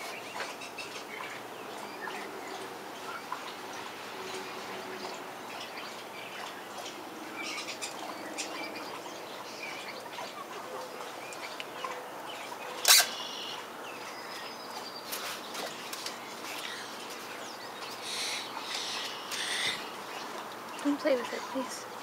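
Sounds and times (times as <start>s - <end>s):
chickens and birds chirping: 0.0s - 22.0s
sharp loud bird call: 12.8s - 13.6s.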